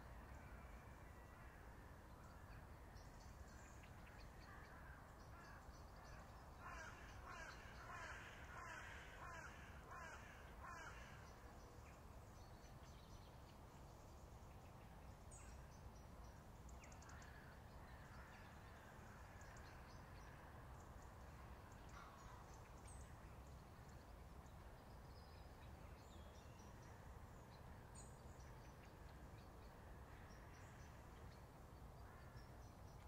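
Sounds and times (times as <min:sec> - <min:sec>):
faint outdoor background: 0:00.0 - 0:33.0
crow cawing: 0:06.6 - 0:11.2.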